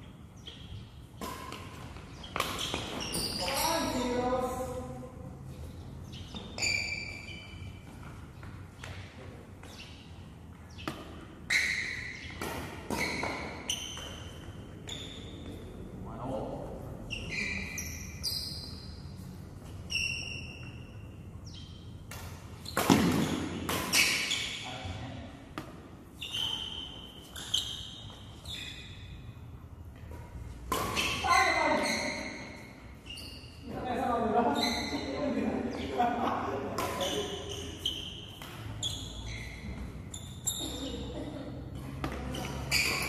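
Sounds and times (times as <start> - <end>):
shoes squeaking on court floor: 0.0 - 15.9, 16.6 - 43.0
rackets hitting shuttlecock: 0.4 - 4.7, 6.1 - 15.0, 21.4 - 24.6, 29.9 - 32.8, 36.6 - 43.0
rackets striking shuttlecock: 0.5 - 4.2, 21.5 - 24.5, 29.9 - 31.6.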